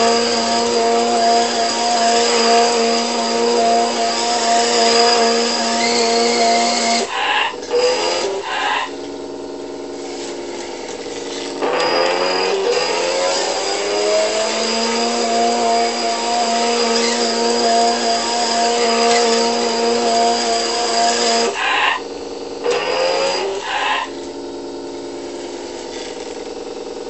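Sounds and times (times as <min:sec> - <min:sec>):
synthetic engine sound through speaker: 0:06.2 - 0:12.9, 0:21.5 - 0:24.2.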